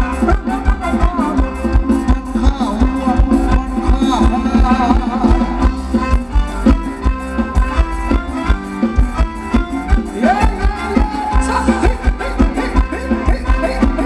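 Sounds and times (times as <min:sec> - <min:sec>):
band playing dance music: 0:00.0 - 0:14.0
fast steady drum beat: 0:00.0 - 0:14.0.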